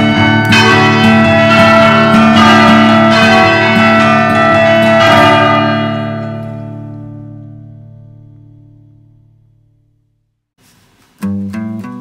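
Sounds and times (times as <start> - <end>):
church bells ringing a peal: 0.0 - 8.1.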